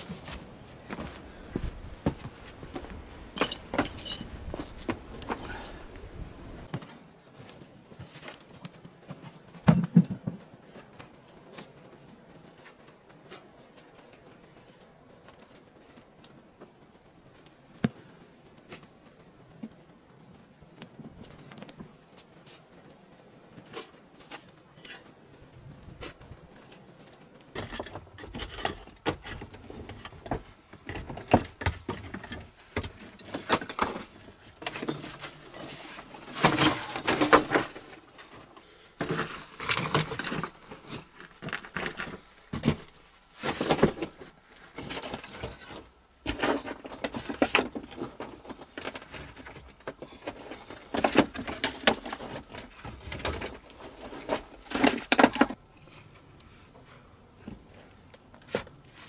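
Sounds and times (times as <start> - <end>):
stones clattering and scraping: 0.0 - 6.1, 25.8 - 56.1.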